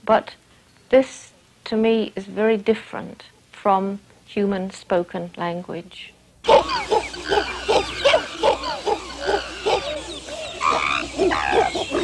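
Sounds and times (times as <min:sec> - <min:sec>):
chimpanzees calling: 0:06.4 - 0:12.0.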